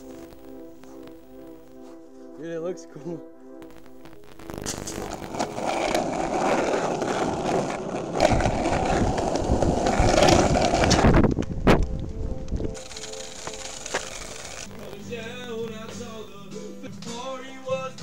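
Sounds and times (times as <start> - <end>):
skateboard wheels on rough asphalt: 4.6 - 16.3.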